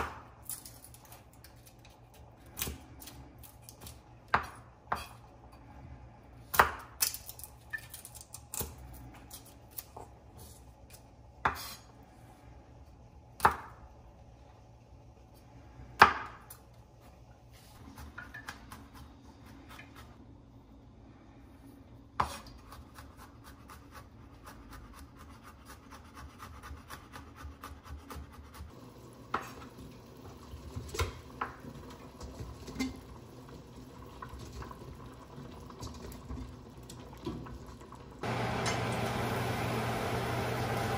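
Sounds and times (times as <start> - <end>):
low steady hum: 0.2 - 22.8.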